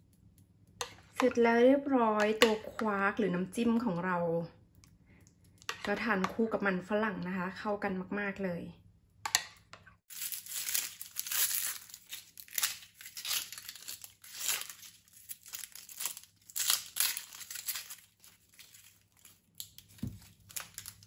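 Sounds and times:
onion skin crackling and tearing: 10.1 - 21.0.

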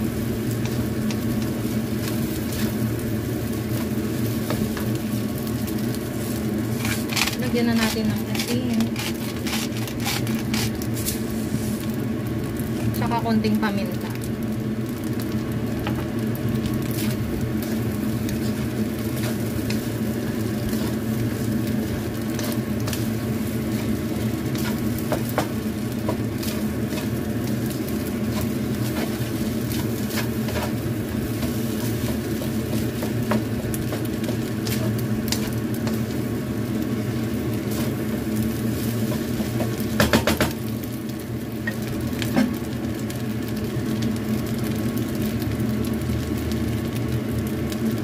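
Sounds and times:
steady low hum: 0.0 - 44.4
rice sizzling in a wok: 0.0 - 48.0
spatula scraping a pan: 6.7 - 11.2.

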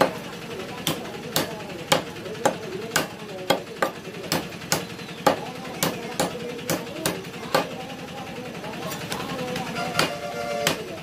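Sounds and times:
cleaver chopping on wooden block: 0.8 - 7.8, 9.6 - 10.8.

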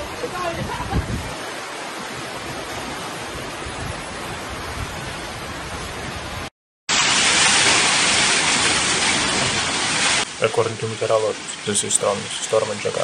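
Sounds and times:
storm wind: 0.0 - 11.6
heavy driving rain: 0.0 - 13.0.

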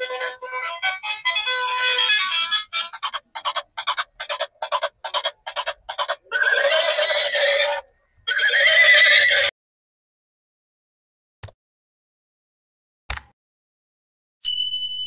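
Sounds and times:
warbling animal-like toy calls: 2.2 - 9.5
toy electronic chirps: 14.4 - 15.0.

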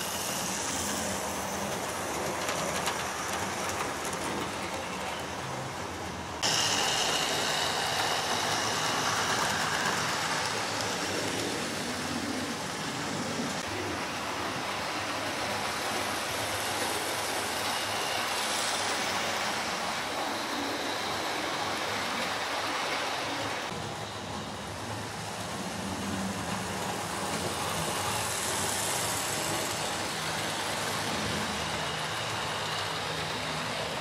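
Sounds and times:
model train wheels rattling: 0.0 - 5.7, 6.4 - 13.6.

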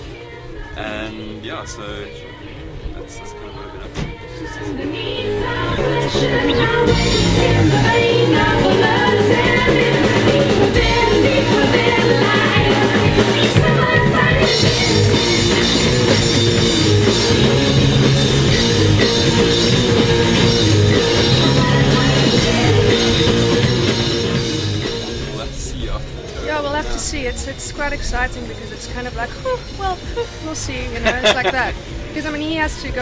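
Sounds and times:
person singing: 0.0 - 16.3
drums: 0.0 - 33.0
keyboards: 0.0 - 33.0
electric guitar: 3.4 - 27.2.

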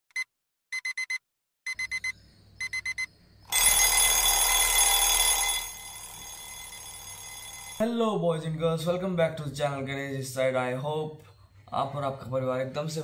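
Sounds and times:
digital alarm beeping: 0.1 - 7.8.

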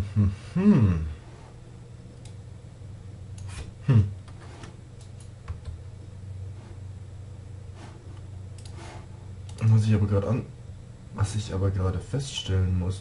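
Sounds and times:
man murmuring hm: 0.0 - 1.3, 3.5 - 4.3
steady low hum: 0.0 - 13.0
computer mouse and keyboard clicks: 8.1 - 9.6.

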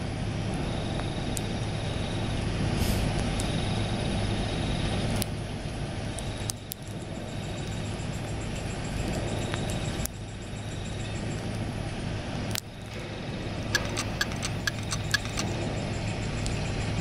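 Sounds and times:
insect trilling: 12.7 - 17.0
faint clicks: 13.7 - 15.6.

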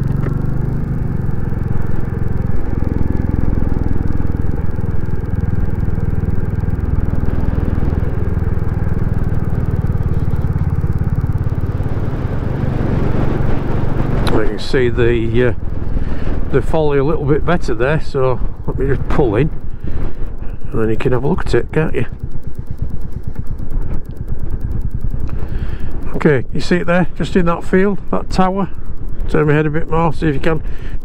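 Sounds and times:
motorcycle engine running: 0.0 - 31.0.

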